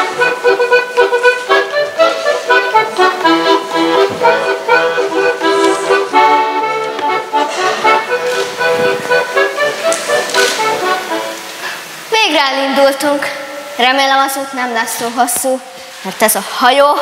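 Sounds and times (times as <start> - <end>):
accordion music: 0.0 - 13.6.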